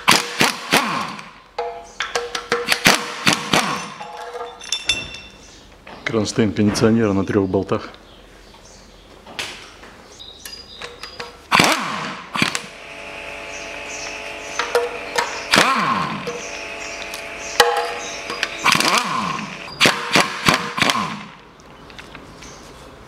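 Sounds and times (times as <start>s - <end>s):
sharp metallic clinks ringing: 3.7s - 5.6s.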